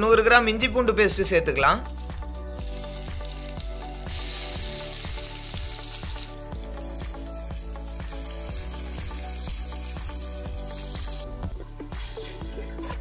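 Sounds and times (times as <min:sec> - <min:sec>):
background music with steady beat: 0:00.0 - 0:13.0
paste sizzling in hot oil: 0:02.6 - 0:12.2.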